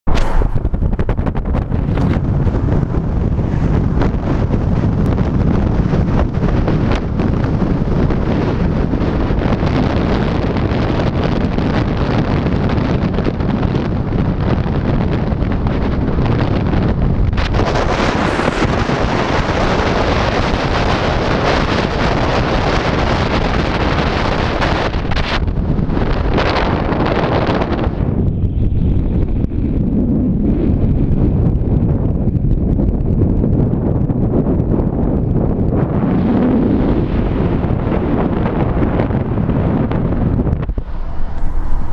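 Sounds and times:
road noise: 0.0s - 10.2s, 13.5s - 22.0s, 39.3s - 41.9s
wind buffeting microphone: 0.0s - 41.9s.

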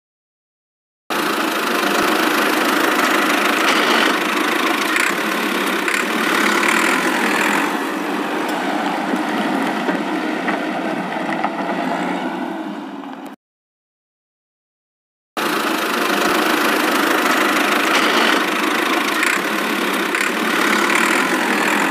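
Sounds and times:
tractor engine running: 1.1s - 11.8s, 15.4s - 21.9s.

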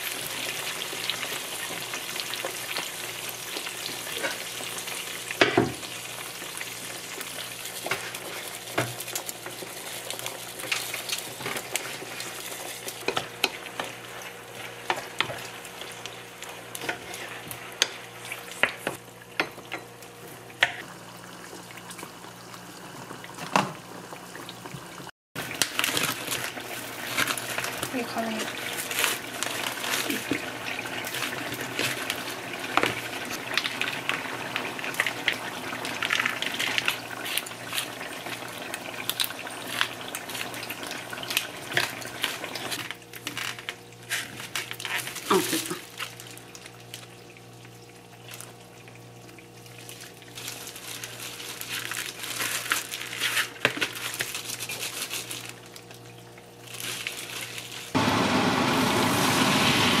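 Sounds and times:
oil sizzling in a frying pan: 0.0s - 44.2s, 44.8s - 60.0s
plastic wrap peeling: 25.4s - 30.4s, 39.0s - 46.9s, 49.8s - 56.0s, 56.6s - 58.0s
plastic glove crinkling: 25.4s - 32.4s, 39.0s - 47.0s, 49.7s - 58.0s.

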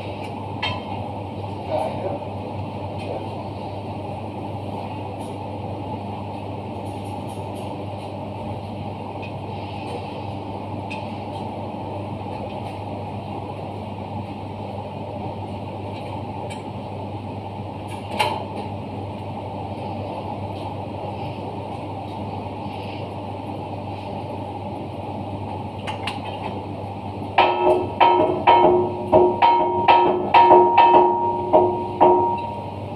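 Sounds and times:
machinery hum: 0.0s - 32.9s
sharp metallic knock: 27.4s - 32.5s.

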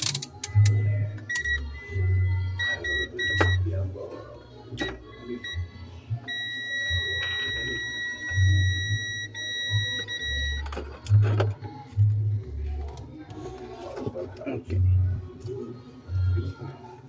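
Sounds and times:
multimeter continuity beep: 0.6s - 3.7s, 4.8s - 10.7s.

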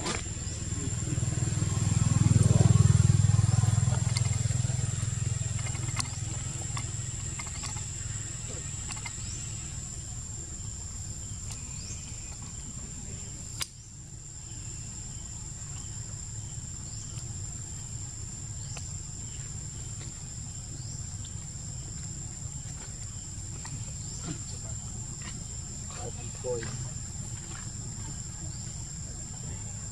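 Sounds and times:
low outdoor rumble: 0.0s - 29.9s
sharp click: 13.6s - 13.8s.

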